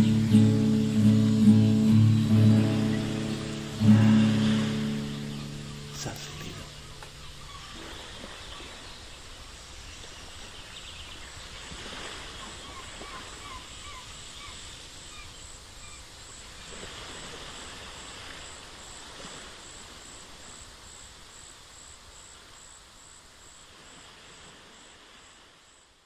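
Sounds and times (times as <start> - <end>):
steady wash of noise: 0.0 - 7.4
insects chirping: 0.0 - 26.0.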